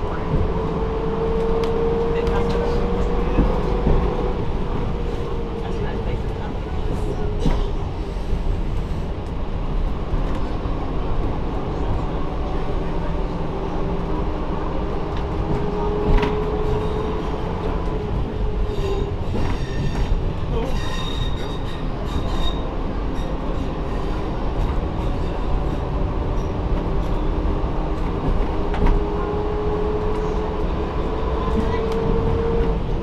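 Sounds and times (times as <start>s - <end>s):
diesel railcar engine and wheel rumble: 0.0s - 33.0s
high wheel squeal: 18.6s - 23.7s.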